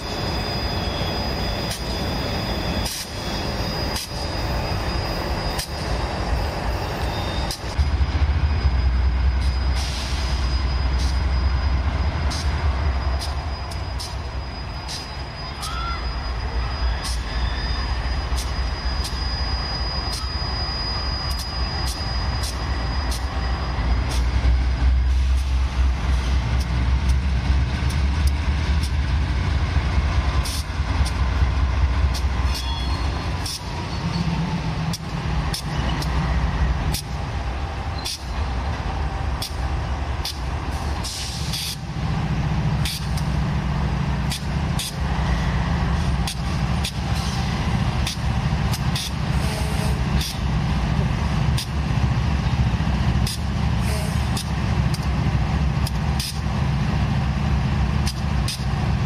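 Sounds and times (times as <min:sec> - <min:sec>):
diesel locomotive engines rumbling: 0:00.0 - 0:59.0.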